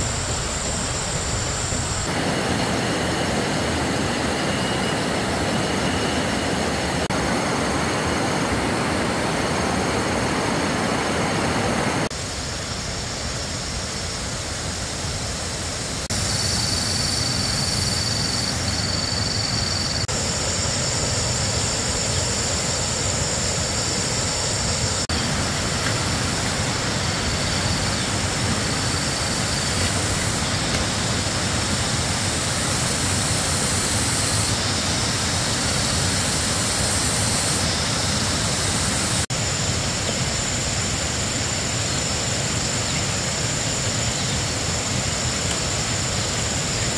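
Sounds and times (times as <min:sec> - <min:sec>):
steady rushing noise: 0:00.0 - 0:41.9.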